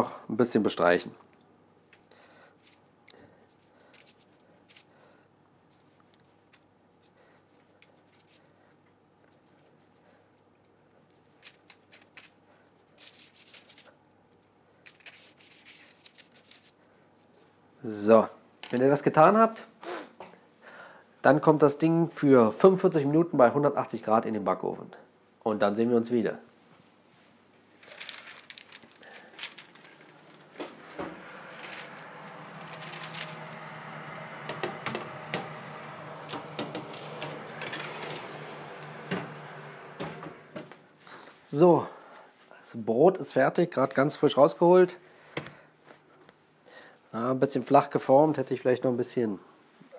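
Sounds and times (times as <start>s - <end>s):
oven humming: 29.2s - 41.3s.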